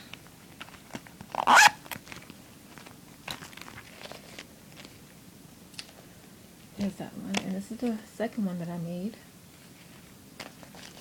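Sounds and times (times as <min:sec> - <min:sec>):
paper and tape crinkling: 0:00.5 - 0:05.0, 0:10.4 - 0:11.0.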